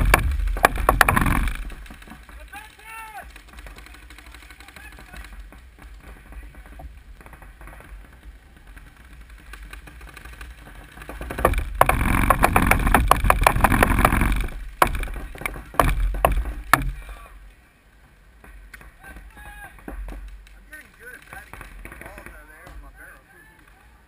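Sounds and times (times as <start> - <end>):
paintball marker firing: 0.0 - 2.4.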